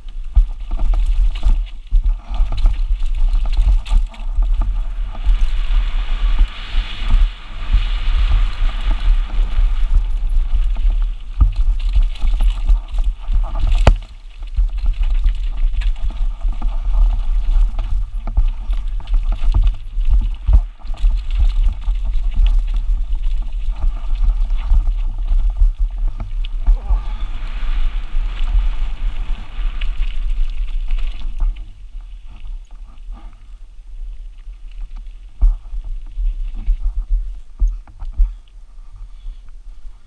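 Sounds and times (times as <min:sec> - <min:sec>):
bike rattling and knocking: 0:00.0 - 0:27.2, 0:28.8 - 0:31.9
tyres crunching on loose ground: 0:00.0 - 0:38.5
wind rumble on microphone: 0:00.0 - 0:40.0.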